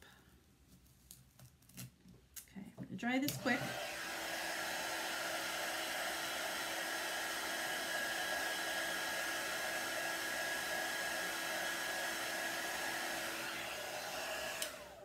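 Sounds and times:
blow dryer rushing air: 3.2 - 15.0.

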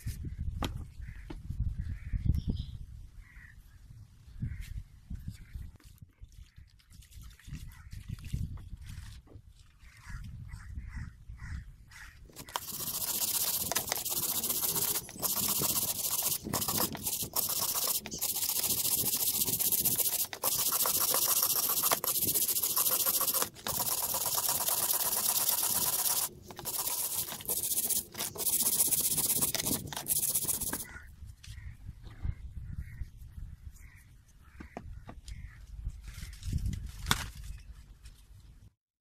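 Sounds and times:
wire brush scrubbing metal: 12.4 - 30.9.

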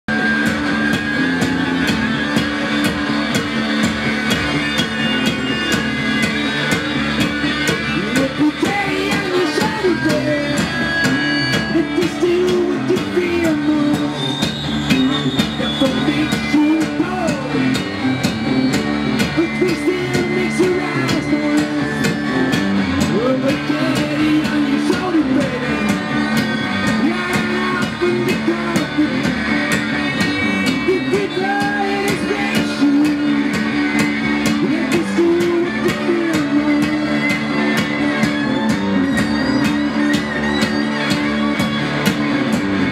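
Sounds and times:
guitar drone: 0.1 - 42.9
steady drum beat: 0.1 - 42.9
man singing: 7.8 - 10.7, 11.6 - 14.3, 15.6 - 17.8, 19.3 - 22.2, 23.0 - 26.0, 26.9 - 29.5, 30.1 - 33.7, 34.5 - 37.7.

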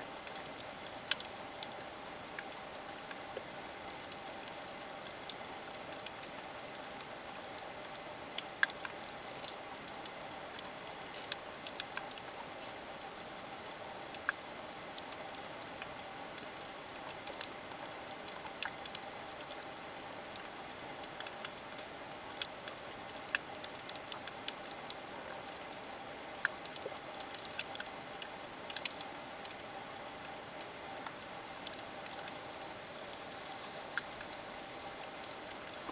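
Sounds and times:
sharp clicks and crackles: 10.8 - 12.7.

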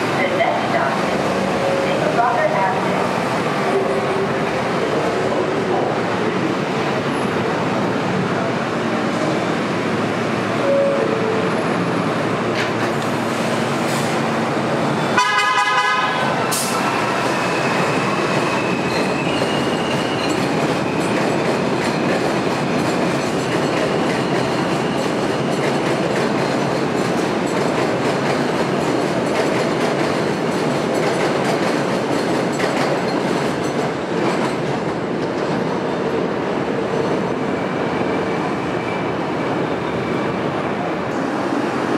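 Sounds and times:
train wheels rumbling on rails: 0.0 - 41.9
train horn blast: 15.2 - 16.3.

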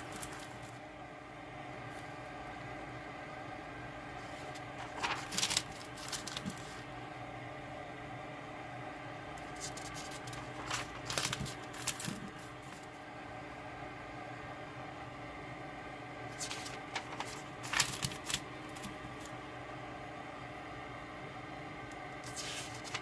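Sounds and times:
notebook pages turning: 0.0 - 0.8, 4.2 - 6.8, 9.4 - 12.9, 16.3 - 19.3, 22.2 - 23.0.

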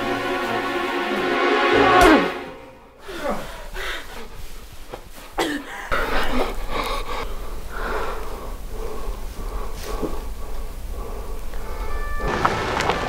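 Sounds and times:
person gasping and sobbing: 3.0 - 4.2
loud falling cry: 11.8 - 13.0.

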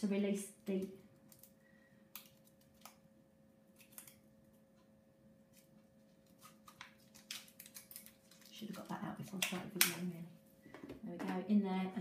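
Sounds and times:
faint steady hum: 0.0 - 12.0
plastic wrapper crinkling: 5.5 - 9.8.

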